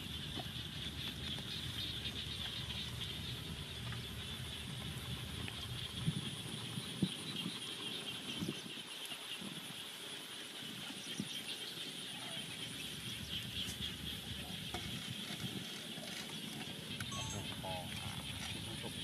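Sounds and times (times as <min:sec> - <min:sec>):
high-pitched outdoor hum: 0:16.8 - 0:18.7.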